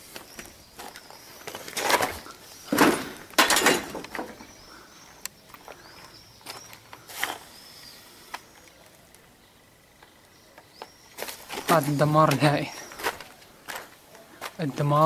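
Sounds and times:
small birds chirping: 0.0s - 3.4s, 4.0s - 15.0s
footsteps crunching over rubble: 0.0s - 7.5s, 10.6s - 15.0s.

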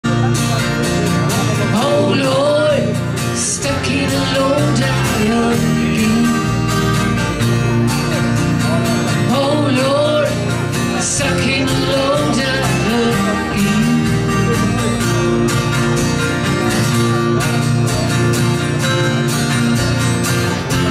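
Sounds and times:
electric guitar: 0.0s - 20.9s
strummed acoustic guitars: 0.0s - 20.9s
woman singing: 1.8s - 6.6s, 9.3s - 14.1s.

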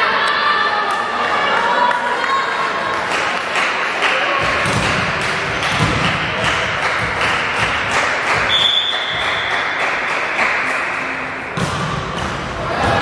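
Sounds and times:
spectators beating a rhythm: 4.3s - 13.0s
referee's whistle: 8.5s - 9.6s.

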